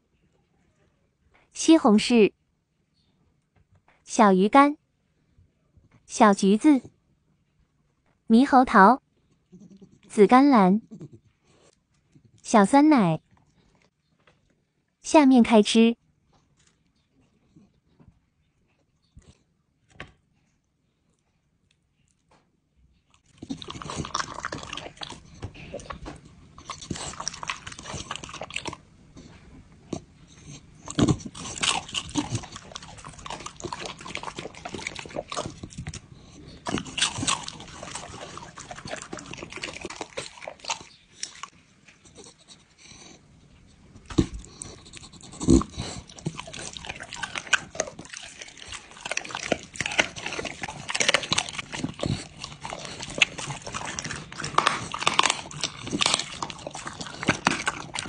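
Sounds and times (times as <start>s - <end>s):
dog chewing wet meat: 23.2s - 43.1s, 44.0s - 58.0s.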